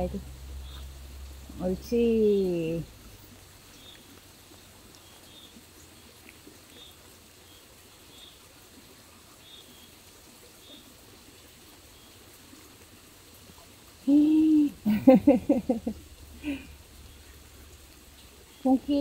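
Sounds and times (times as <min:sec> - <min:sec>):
person humming: 0:14.0 - 0:15.3.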